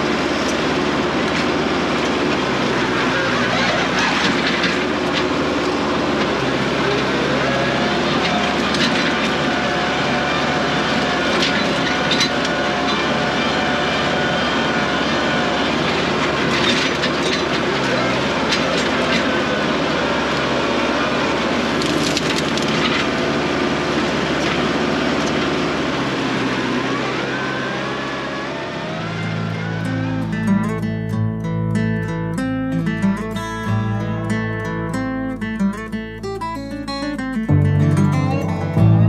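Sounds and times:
tractor engine running: 0.0 - 39.0
wood cracking and snapping: 21.7 - 23.1.

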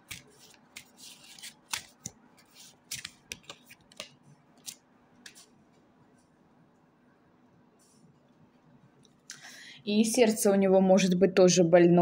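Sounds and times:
cards shuffled by hand: 0.0 - 5.5.

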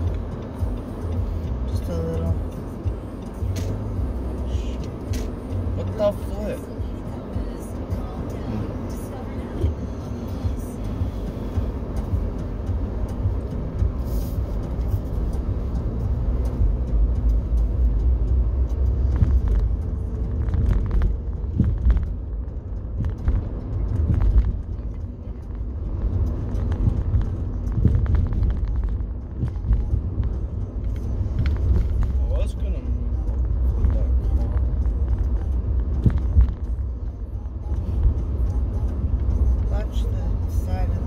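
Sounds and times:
car engine and tyre noise: 0.0 - 41.0.

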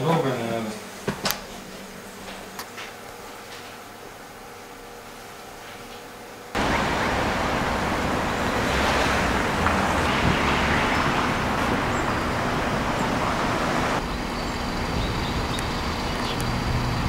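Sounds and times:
road traffic noise: 6.6 - 17.0.

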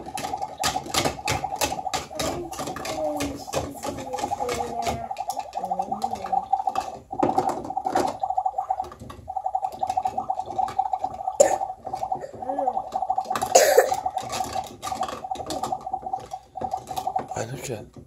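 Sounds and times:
plastic pots and lids clicking: 0.0 - 8.2
toy burner pulsing buzzy tone: 0.0 - 17.6.

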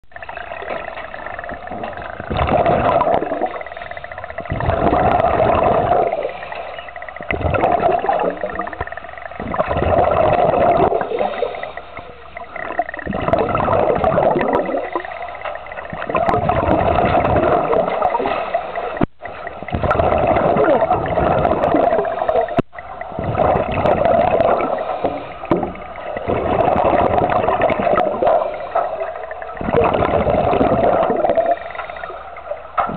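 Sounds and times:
air bubbles gurgling: 0.1 - 32.9
diver breathing through regulator: 24.1 - 26.0, 28.2 - 29.6, 31.2 - 32.7.

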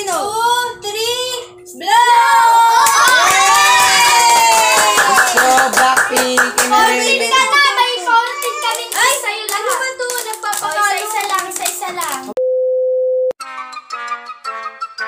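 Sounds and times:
excited voices calling out: 1.8 - 9.0
hand clapping: 2.8 - 12.4.

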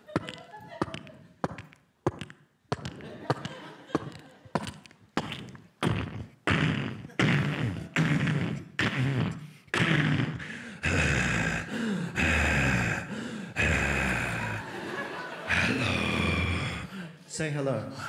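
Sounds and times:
mouth vocal sound effects: 4.1 - 17.2.

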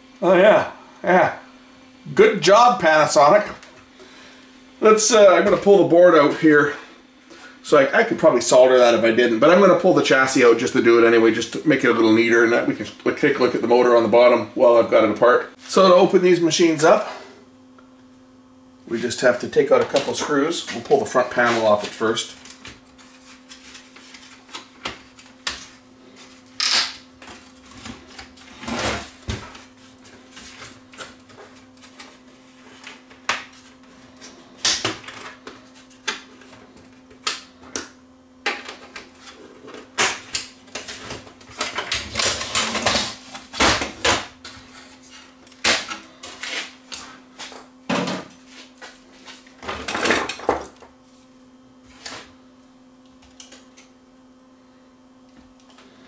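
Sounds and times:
faint steady hum: 0.0 - 56.0.

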